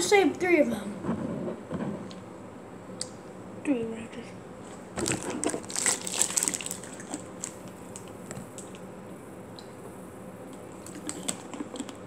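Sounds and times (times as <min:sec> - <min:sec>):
chewing clicks and squishes: 0:05.1 - 0:08.8, 0:10.5 - 0:12.0.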